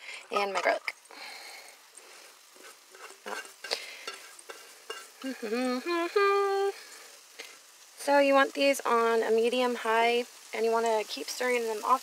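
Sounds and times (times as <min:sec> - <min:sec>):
onions sizzling in frying pan: 0:00.0 - 0:12.0
food scraped from metal bowl: 0:02.5 - 0:05.2
person making sliding vocal sounds: 0:05.2 - 0:06.6.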